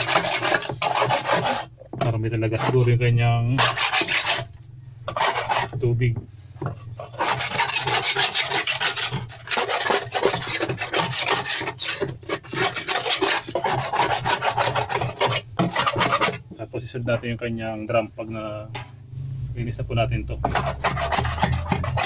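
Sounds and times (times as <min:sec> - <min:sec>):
scraper rasping on plastic: 0:00.0 - 0:01.7, 0:03.6 - 0:04.5, 0:05.1 - 0:05.8, 0:07.0 - 0:16.4, 0:20.4 - 0:22.0.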